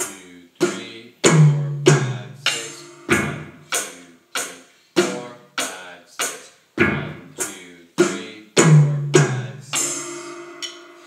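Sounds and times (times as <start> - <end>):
electronic drum hits: 1.2 - 5.3, 6.8 - 7.4, 8.0 - 11.0
deep ringing drum hit: 1.3 - 3.7.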